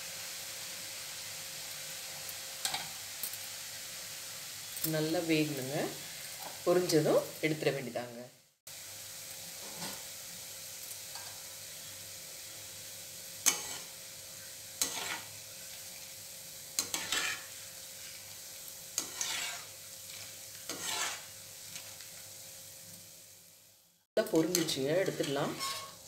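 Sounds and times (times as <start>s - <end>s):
batter sizzling in hot oil: 0.0s - 26.0s
ladle scraping a metal pan: 14.8s - 15.3s, 16.8s - 17.5s, 19.0s - 21.9s, 24.5s - 26.0s.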